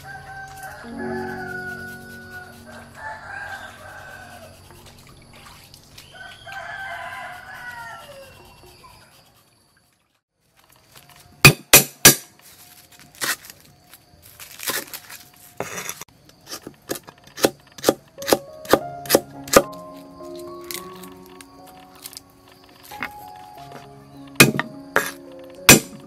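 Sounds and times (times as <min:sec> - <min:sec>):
background music: 0:00.0 - 0:06.1, 0:18.2 - 0:26.0
cleaver chopping on wooden board: 0:11.5 - 0:12.3, 0:16.9 - 0:19.7, 0:24.4 - 0:26.0
cleaver scraping board: 0:15.6 - 0:19.7.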